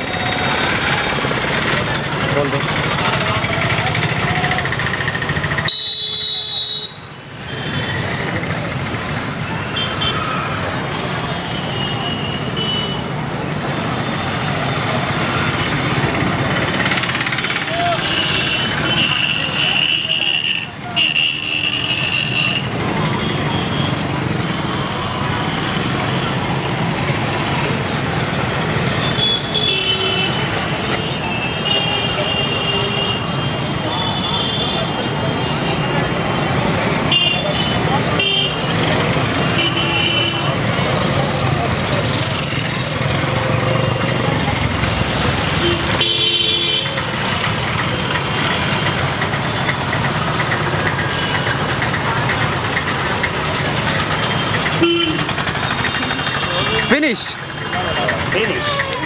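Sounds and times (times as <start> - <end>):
vehicle engines running: 0.0 - 5.8, 7.2 - 11.6, 13.1 - 59.0
street traffic: 0.0 - 59.0
car horn toot: 54.8 - 55.3.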